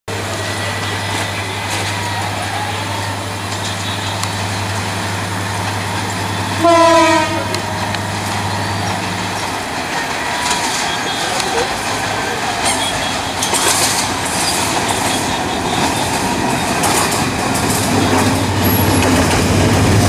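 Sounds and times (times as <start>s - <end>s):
diesel locomotive engine hum: 0.1s - 20.0s
train horn blast: 0.2s - 9.4s.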